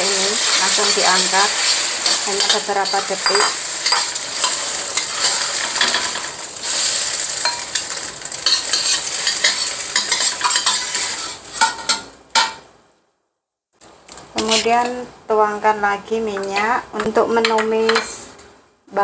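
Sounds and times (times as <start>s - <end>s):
spatula scraping wok: 0.0s - 12.1s
eggs sizzling in hot oil: 0.0s - 12.2s.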